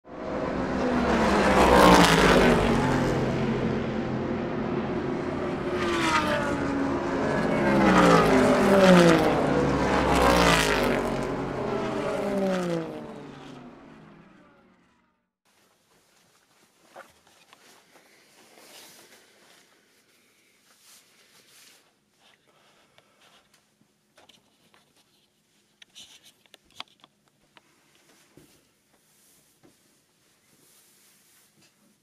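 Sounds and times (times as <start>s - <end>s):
race cars speeding past: 0.1s - 15.2s.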